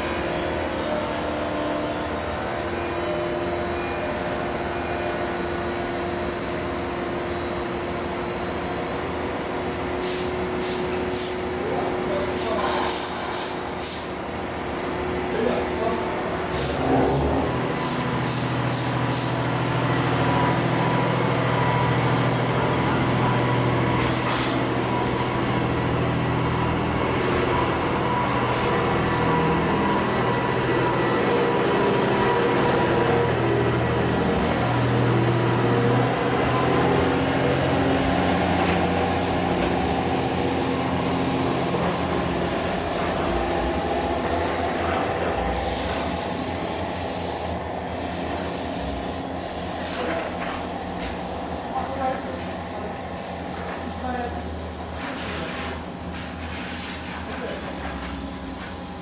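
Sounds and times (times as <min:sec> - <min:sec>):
diesel railcar engine running: 0:00.0 - 0:59.0
train wheels on rail: 0:20.2 - 0:59.0.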